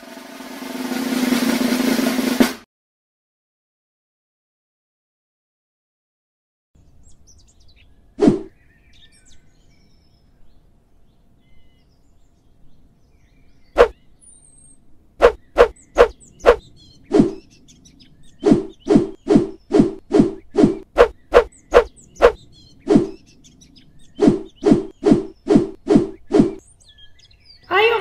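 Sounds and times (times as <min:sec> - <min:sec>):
faint birdsong: 0:06.8 - 0:28.0.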